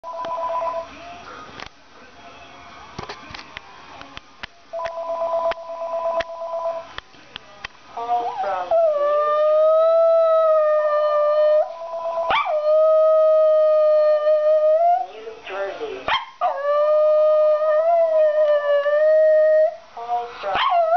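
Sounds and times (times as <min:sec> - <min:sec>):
two-note phone tone: 0:00.0 - 0:00.9, 0:04.8 - 0:06.8
dog howling: 0:08.0 - 0:15.1, 0:16.2 - 0:20.9.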